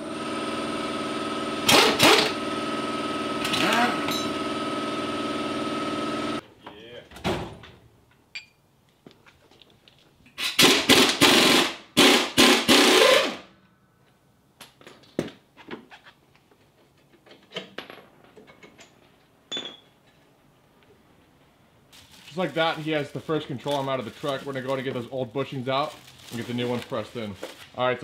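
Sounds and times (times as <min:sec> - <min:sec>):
impact wrench bursts: 0:01.6 - 0:06.2, 0:10.4 - 0:13.5
tools clinking on metal: 0:08.3 - 0:08.6, 0:18.5 - 0:19.9.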